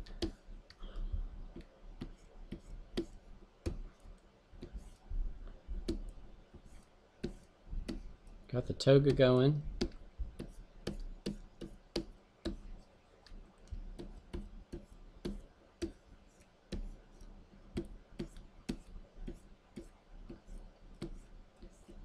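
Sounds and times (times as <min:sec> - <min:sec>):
faint low hum: 0:00.0 - 0:22.0.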